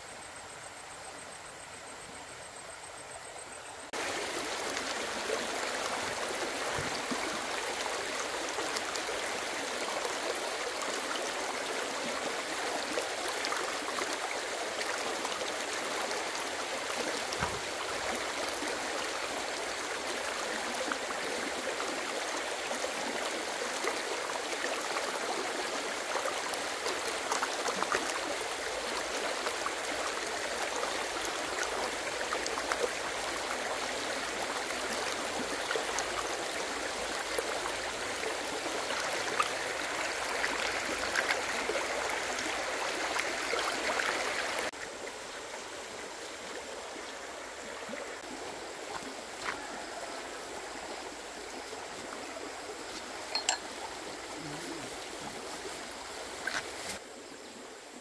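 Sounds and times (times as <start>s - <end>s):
running water with splashes: 3.9s - 57.7s.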